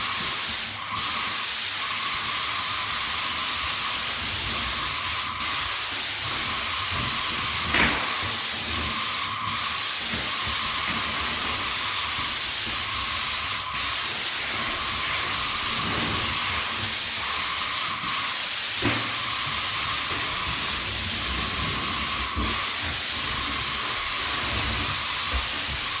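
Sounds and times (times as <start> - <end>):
paint spray gun hissing: 0.0 - 26.0.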